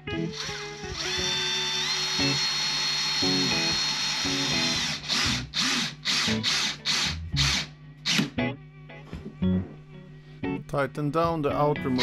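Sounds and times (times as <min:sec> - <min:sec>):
cordless drill driving screws: 0:00.3 - 0:08.2.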